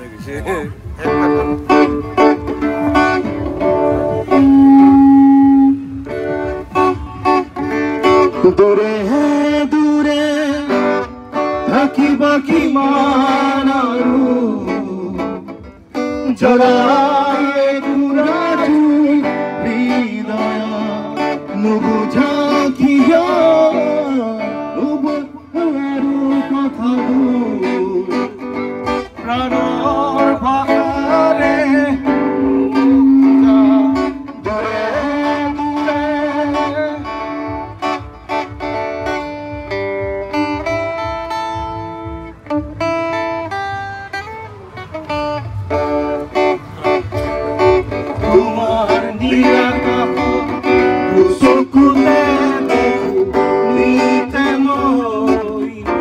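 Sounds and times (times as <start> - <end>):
bass line: 0.0 - 56.0
guitar accompaniment: 0.0 - 56.0
person singing: 29.2 - 37.4, 47.8 - 56.0.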